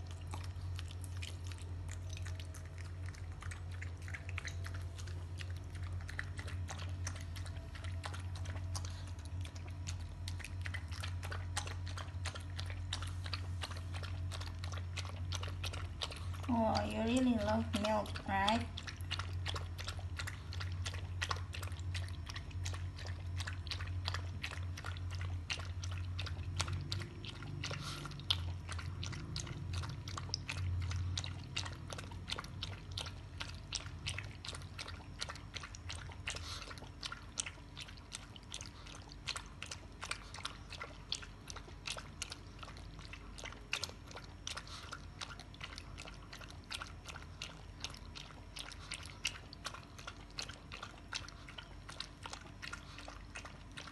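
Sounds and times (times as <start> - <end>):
dog lapping milk: 0.0 - 53.9.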